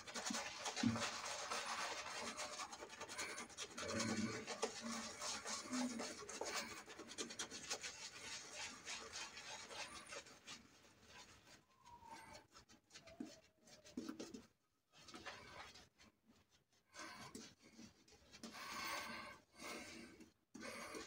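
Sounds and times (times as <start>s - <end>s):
shaving brush scrubbing stubble: 0.0s - 12.1s.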